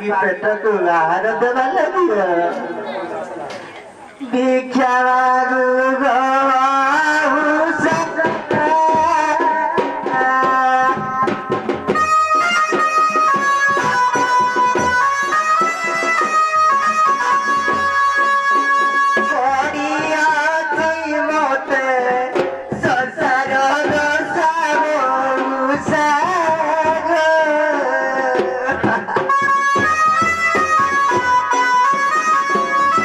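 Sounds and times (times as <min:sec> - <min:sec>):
hand drum beat: 0:07.6 - 0:27.3, 0:28.0 - 0:33.0
folk melody of held notes: 0:11.9 - 0:20.3, 0:28.8 - 0:33.0.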